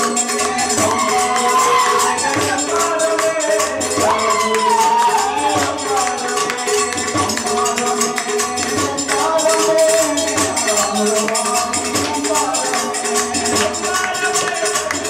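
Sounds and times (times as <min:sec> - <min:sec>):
sharp high percussion strokes: 0:00.0 - 0:15.0.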